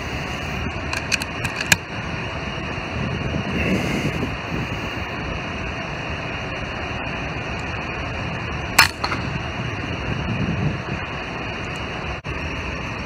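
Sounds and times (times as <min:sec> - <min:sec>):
steady background noise: 0:00.0 - 0:13.0
air rifle shot: 0:08.8 - 0:09.4.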